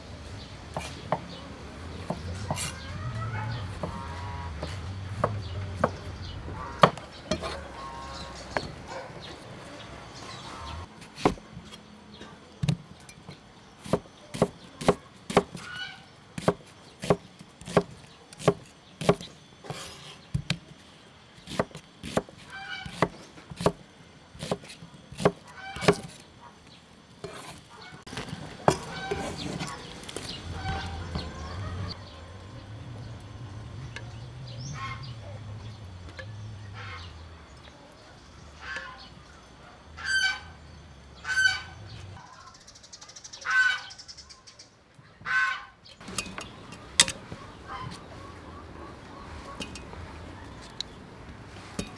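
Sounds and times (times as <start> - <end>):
cleaver chopping on wooden board: 13.8 - 15.6, 16.4 - 20.6, 21.5 - 23.8, 24.4 - 26.2.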